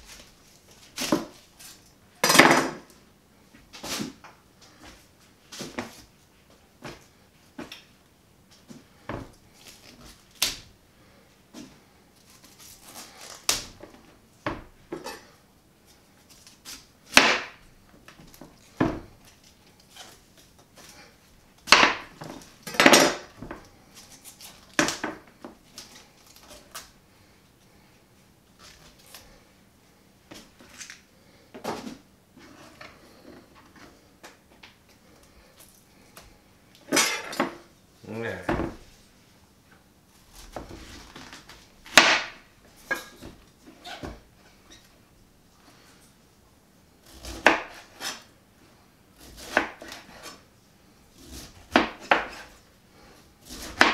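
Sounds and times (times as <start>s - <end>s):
knife cutting cauliflower on board: 47.0s - 48.3s, 49.2s - 50.4s, 51.2s - 52.6s, 53.4s - 53.9s.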